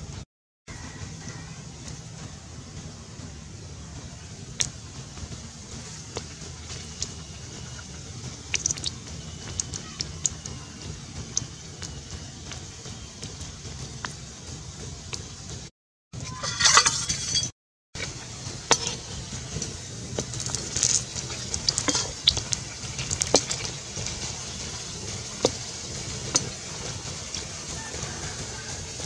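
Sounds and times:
meat sizzling in oil: 6.1s - 9.7s, 18.6s - 29.0s
metal spatula scraping pan: 16.2s - 17.5s.

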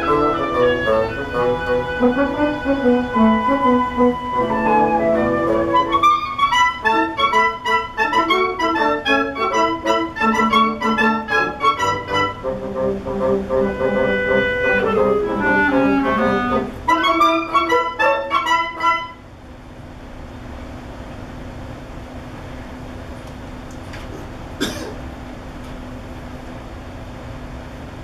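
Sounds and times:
woodwind quintet playing chords: 0.0s - 19.3s
low room hum: 0.0s - 28.0s.

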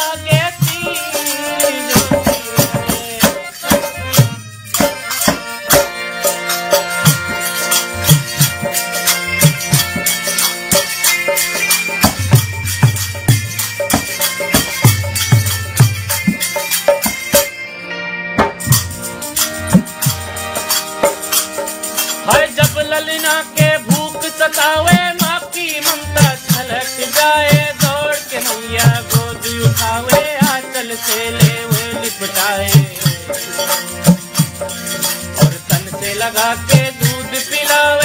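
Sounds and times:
person singing: 0.0s - 5.0s, 22.2s - 34.3s, 35.3s - 38.0s
dholak drum strokes: 0.0s - 17.7s, 18.3s - 38.0s
harmonium chords: 0.0s - 38.0s
rattling percussion: 0.0s - 38.0s.

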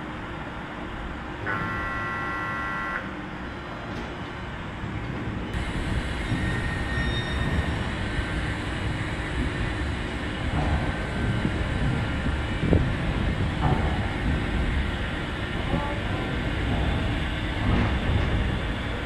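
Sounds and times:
locomotive mechanical hum: 0.0s - 19.0s
high signal tone chord: 1.4s - 3.2s.

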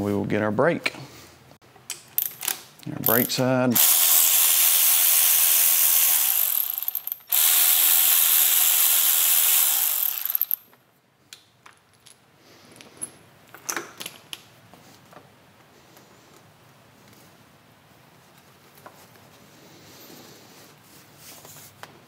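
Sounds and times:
cordless driver running: 3.8s - 10.6s.

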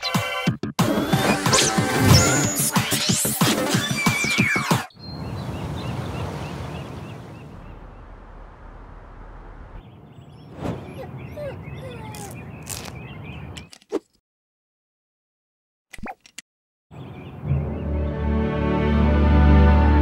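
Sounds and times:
small birds chirping: 3.8s - 8.1s, 9.8s - 14.0s.

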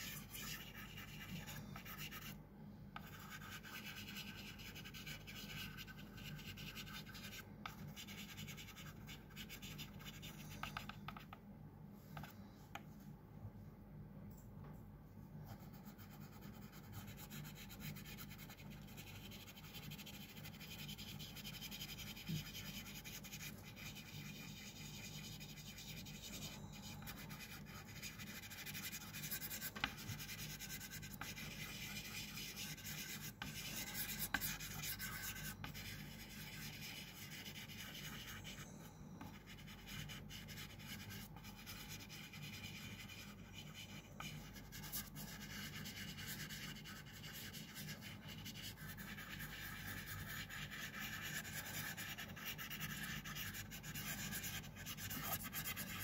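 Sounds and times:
drawing stick scratching paper: 0.0s - 2.4s, 3.0s - 11.3s, 15.5s - 38.6s, 39.2s - 56.0s
steady low hum: 0.0s - 56.0s.

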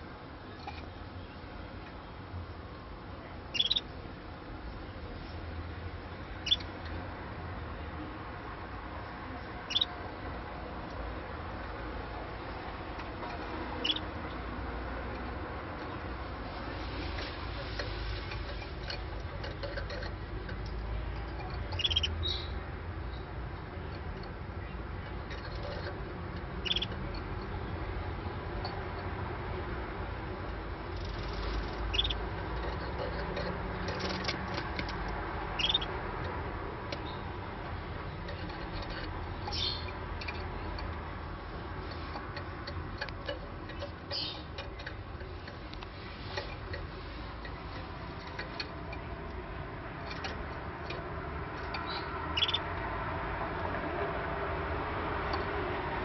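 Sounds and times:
low background hum: 0.0s - 56.0s
canary chirping: 3.4s - 4.0s, 6.1s - 7.4s, 9.5s - 29.1s, 29.7s - 52.8s
light ticks and taps: 41.8s - 52.9s.

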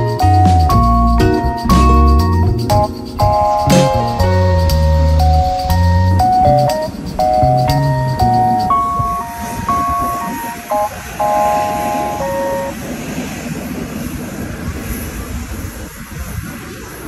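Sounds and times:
electronic melody: 0.0s - 12.8s
jet engines and vehicles rumbling: 0.0s - 17.0s.

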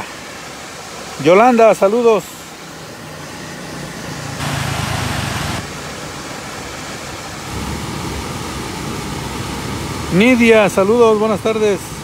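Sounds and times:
floodwater rushing: 0.0s - 12.0s
loud hiss: 4.3s - 5.9s.

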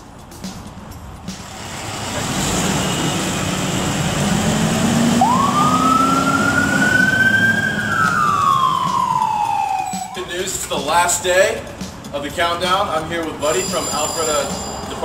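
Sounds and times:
fire engine running: 1.4s - 10.6s
siren winding up to wail: 4.6s - 10.4s.

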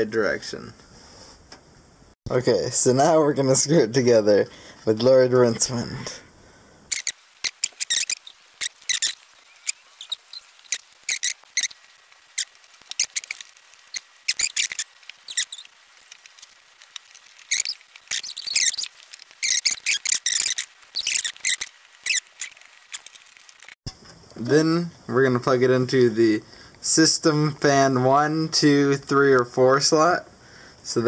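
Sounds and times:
screws squeaking as driven: 6.9s - 16.2s, 17.0s - 23.8s.

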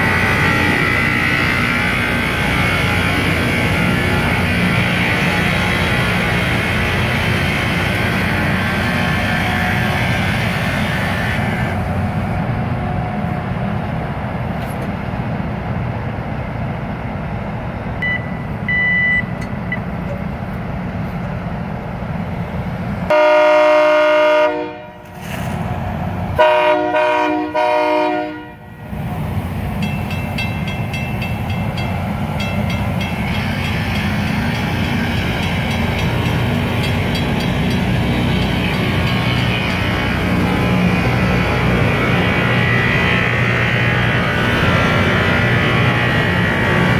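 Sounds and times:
rail grinder grinding steel: 0.0s - 13.1s, 29.5s - 46.9s
train horn blasts: 23.1s - 25.2s, 26.4s - 28.8s
crossing bell ringing: 29.8s - 40.2s.

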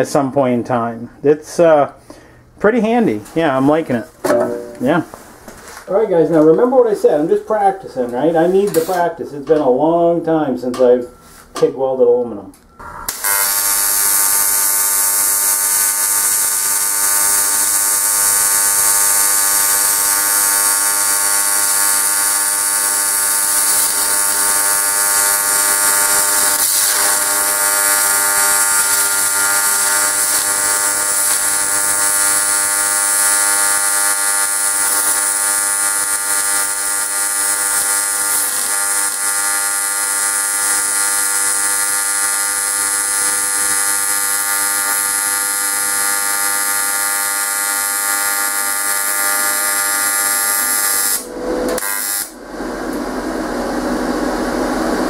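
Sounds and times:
welding arc buzzing and hissing: 12.8s - 55.0s.

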